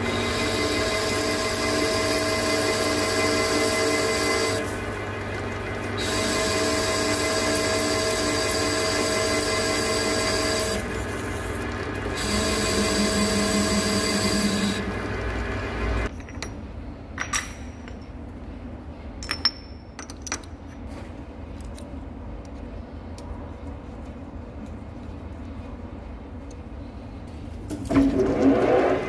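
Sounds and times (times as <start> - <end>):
lathe cutting: 0.0 - 16.1.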